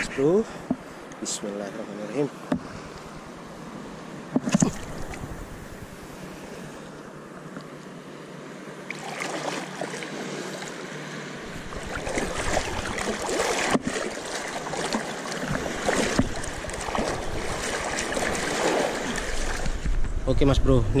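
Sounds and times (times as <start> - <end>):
seawater lapping and splashing: 8.8 - 19.8
wind rumble: 15.5 - 21.0.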